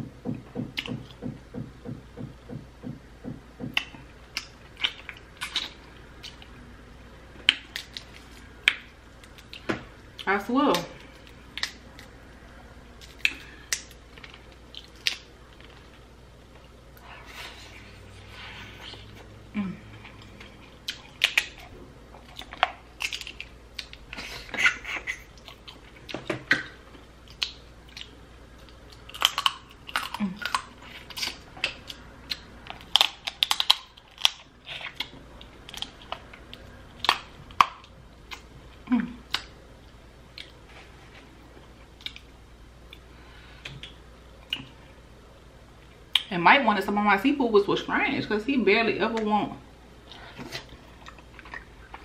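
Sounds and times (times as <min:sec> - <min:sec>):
chewing and lip smacks: 0:20.0 - 0:24.2, 0:25.1 - 0:38.5, 0:50.0 - 0:52.0
crab shells cracking: 0:28.6 - 0:35.1.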